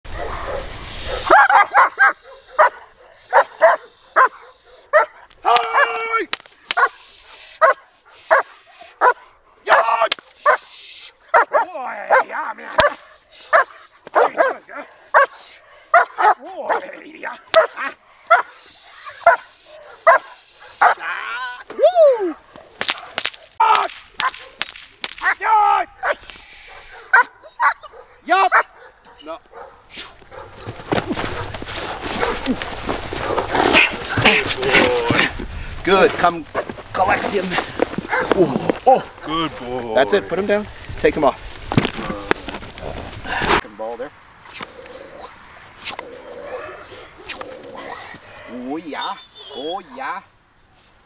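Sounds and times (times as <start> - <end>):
dog barking sharply: 0.2 - 5.1, 7.6 - 9.8, 11.3 - 14.6, 15.2 - 16.4, 17.5 - 18.5, 19.2 - 21.0, 26.0 - 30.7
whip cracking: 6.3 - 7.0, 10.0 - 10.4, 12.8 - 13.1, 22.8 - 25.4.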